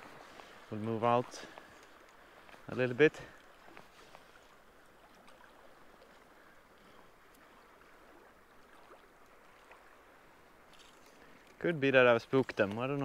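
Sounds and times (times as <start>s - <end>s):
water lapping: 0.0s - 13.0s
faint ticks: 1.5s - 2.6s.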